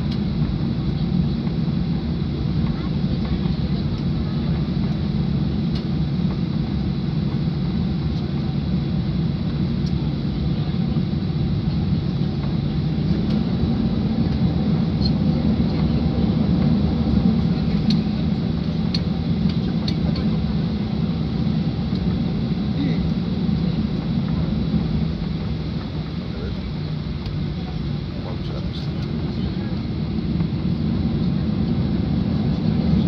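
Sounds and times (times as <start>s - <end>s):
airplane cabin rumble: 0.0s - 33.0s.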